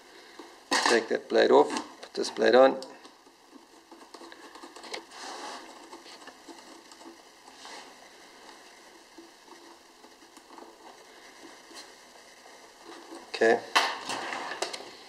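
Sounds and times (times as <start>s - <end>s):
light plastic clicks and scrapes: 1.6s - 7.3s.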